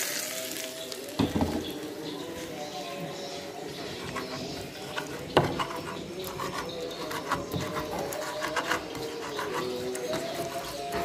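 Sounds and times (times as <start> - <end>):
pestle scraping in clay mortar: 3.8 - 11.0.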